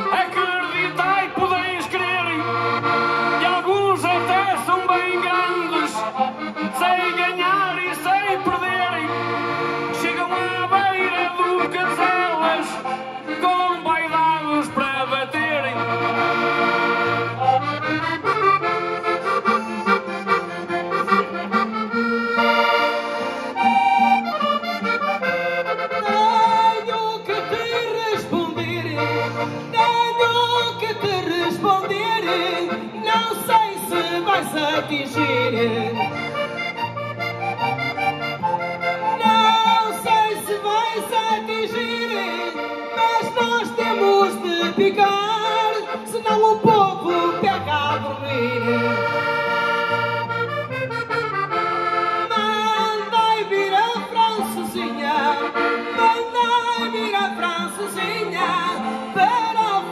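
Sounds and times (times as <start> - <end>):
accordions playing: 0.0 - 59.9.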